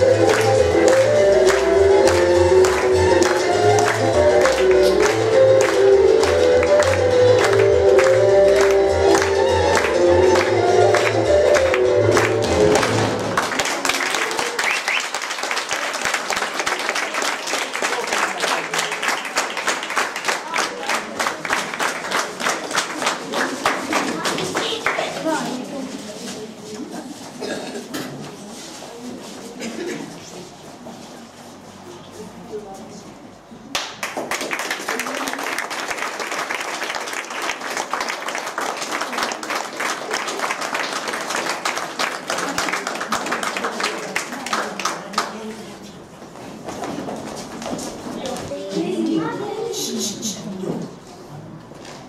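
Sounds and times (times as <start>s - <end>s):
audience applauding: 0.0s - 25.1s, 33.7s - 45.5s.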